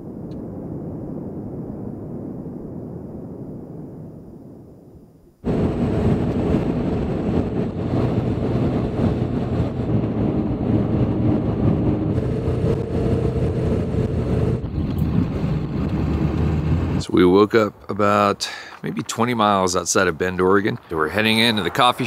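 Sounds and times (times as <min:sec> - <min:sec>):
truck driving at highway speed: 0:05.4 - 0:17.5.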